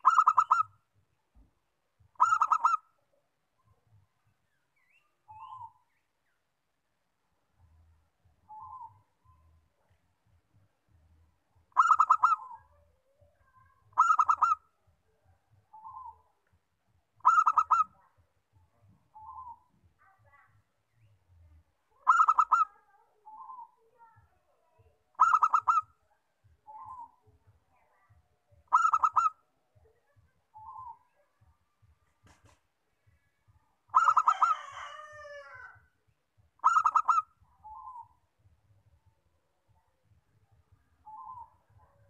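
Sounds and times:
dove cooing: 0.0s - 0.7s, 2.2s - 2.8s, 11.7s - 12.8s, 13.4s - 14.6s, 17.2s - 18.0s, 19.1s - 19.6s, 22.0s - 23.8s, 25.2s - 25.9s, 28.7s - 29.4s, 33.9s - 35.7s, 36.6s - 38.1s, 41.0s - 42.0s.

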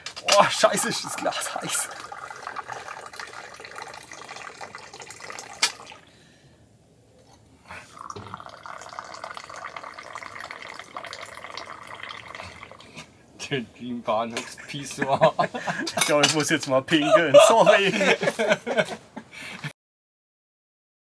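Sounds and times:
tea pouring into glasses: 0.2s - 6.1s, 7.8s - 13.1s.

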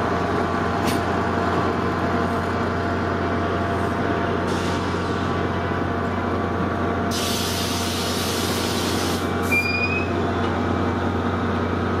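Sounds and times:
low train hum: 0.0s - 12.0s
train coaches rolling past: 0.0s - 12.0s
air hiss: 7.1s - 9.6s.

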